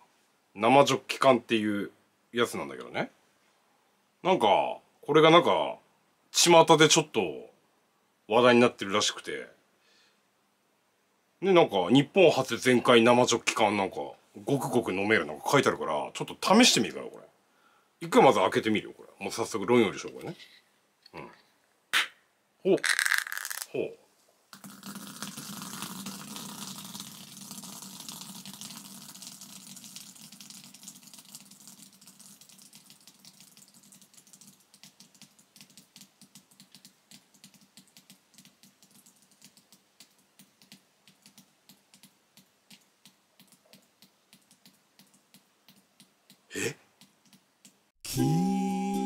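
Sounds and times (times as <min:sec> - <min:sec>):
beer foam fizzing: 0:24.6 - 0:34.0
bubbles crackling and popping: 0:24.6 - 0:39.8.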